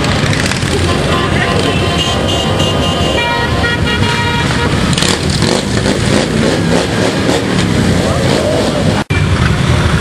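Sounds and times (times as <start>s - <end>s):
motorcycle engines droning: 0.0s - 10.0s
horn sounding: 0.8s - 5.0s.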